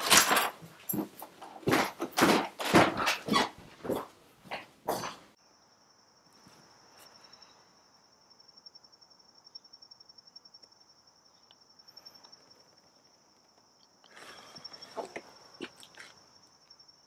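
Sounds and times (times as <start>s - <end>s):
crickets chirping: 4.9s - 17.0s.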